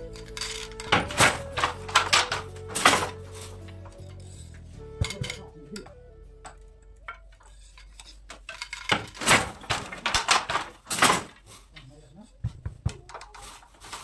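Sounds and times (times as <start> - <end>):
loom clicks and rattles: 0.0 - 6.0, 7.0 - 12.0, 12.9 - 14.0
loud loom beater knocks: 0.4 - 3.2.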